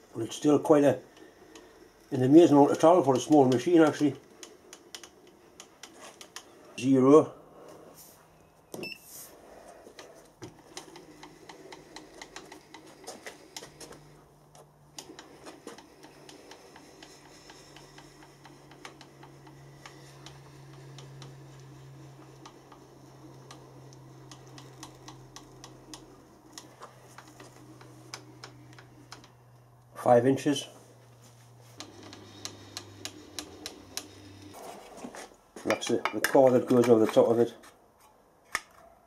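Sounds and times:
small clicks and ticks from slide: 2.8 - 6.5, 9.9 - 29.9.

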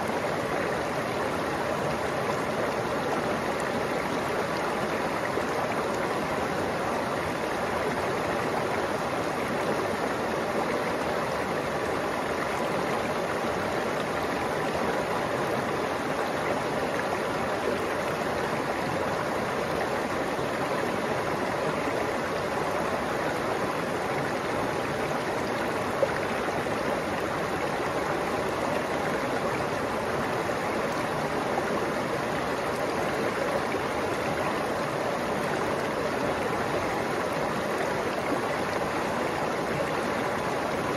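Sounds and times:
stream babbling over rocks: 0.0 - 40.9.

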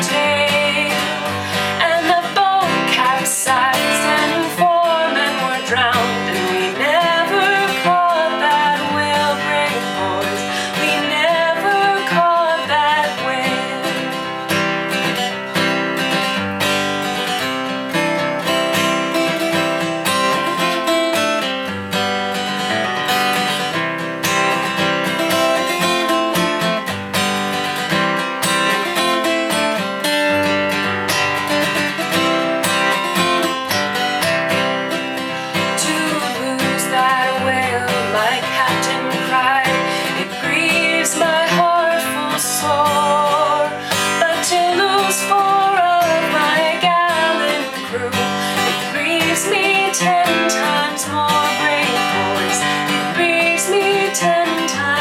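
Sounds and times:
woman singing: 0.0 - 15.4, 28.5 - 30.8, 34.9 - 55.0
acoustic guitar strumming: 0.0 - 55.0.

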